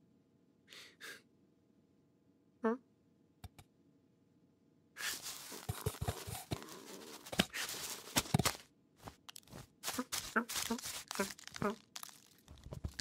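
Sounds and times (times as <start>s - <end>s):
cartoon scraping and rustling: 5.0s - 13.0s.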